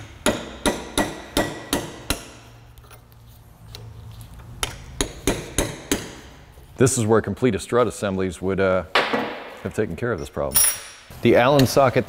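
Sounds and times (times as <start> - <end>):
hammer striking a chisel: 0.0 - 2.6, 4.6 - 6.4.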